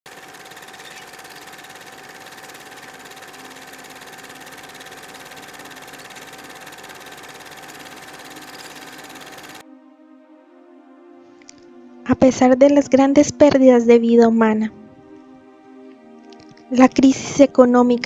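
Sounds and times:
film projector clattering: 0.0 - 9.6
projector hum: 0.1 - 9.6.

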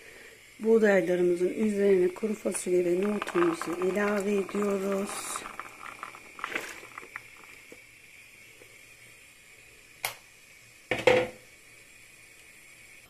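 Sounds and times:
faint steady hiss: 0.0 - 13.0
beans splashing into water: 2.2 - 7.8
loud knock: 10.9 - 11.4.

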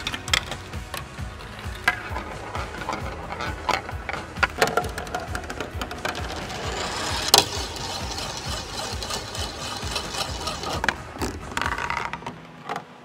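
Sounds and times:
marble clicks: 0.0 - 12.9
marble rattling in plastic funnel: 4.7 - 12.1.

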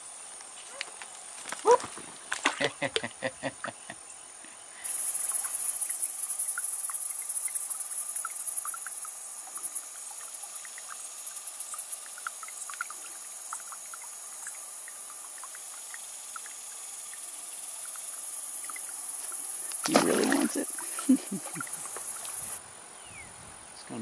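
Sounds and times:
high-pitched insect chorus: 0.0 - 24.0
faint ticks: 4.4 - 19.9
splashy pops on water: 19.7 - 20.7.

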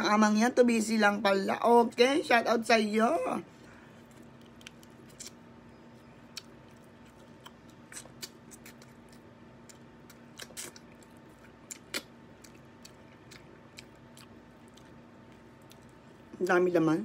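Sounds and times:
faint steady hum: 0.0 - 17.0
chewing: 4.0 - 16.3.

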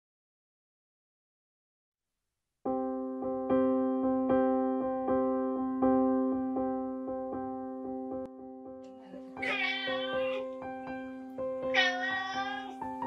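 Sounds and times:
gentle piano music: 2.7 - 13.0.

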